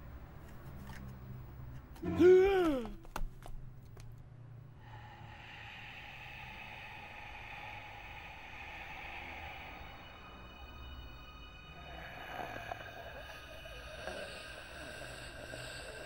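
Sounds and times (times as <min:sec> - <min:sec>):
woman screaming: 0:02.1 - 0:03.0
suspense music drone: 0:04.8 - 0:16.0.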